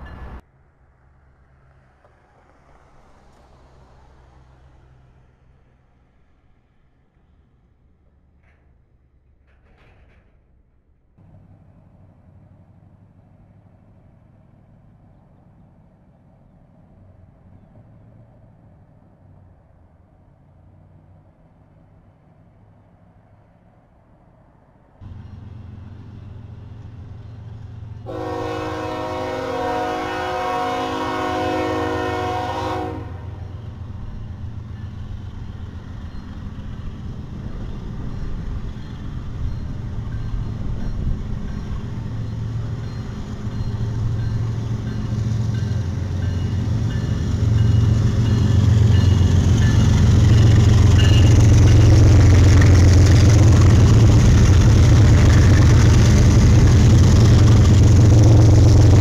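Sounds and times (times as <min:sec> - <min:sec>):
diesel locomotive engines droning: 0:00.0 - 0:59.0
multi-note train horn: 0:28.1 - 0:33.6, 0:48.9 - 0:52.8.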